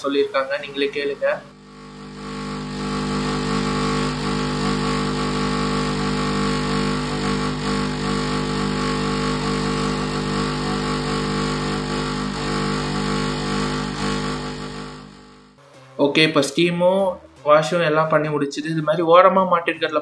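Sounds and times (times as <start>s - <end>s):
washing machine humming: 1.4s - 15.2s.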